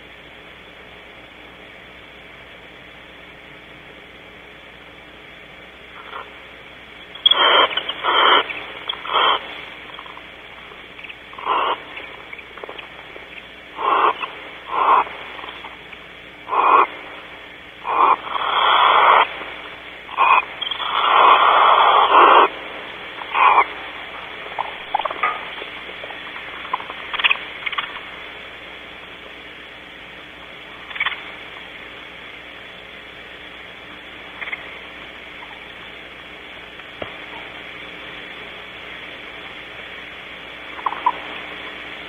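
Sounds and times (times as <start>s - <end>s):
owls hissing: 7.1s - 28.2s, 30.8s - 31.8s, 40.7s - 41.3s.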